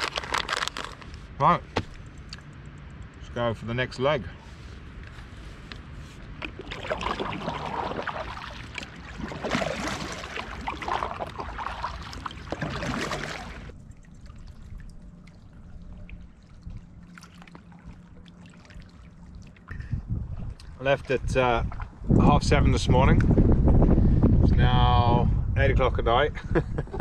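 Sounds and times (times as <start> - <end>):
paddle strokes splashing water: 4.4 - 19.8.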